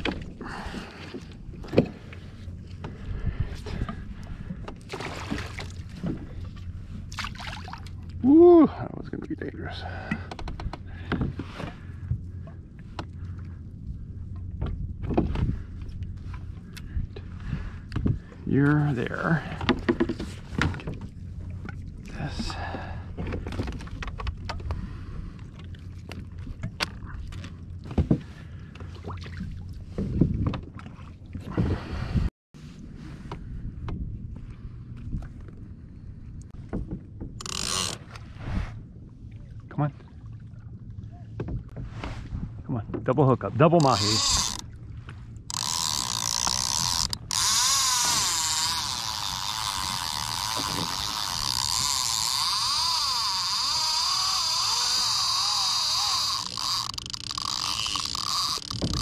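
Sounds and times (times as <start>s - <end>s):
water and wind noise: 0.0s - 59.0s
fishing reel drag screaming: 37.4s - 38.0s, 43.8s - 44.6s, 45.5s - 59.0s
gear knocking against hull: 54.2s - 59.0s.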